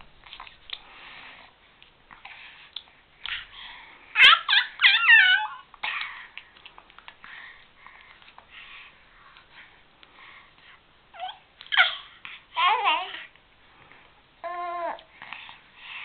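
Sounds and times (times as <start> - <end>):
baby squealing: 4.2 - 5.6.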